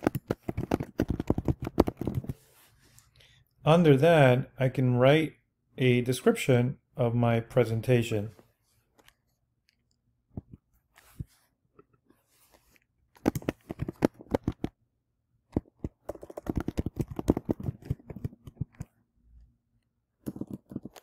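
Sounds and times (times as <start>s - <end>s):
typing on computer keyboard: 0.0s - 2.3s, 15.6s - 18.9s.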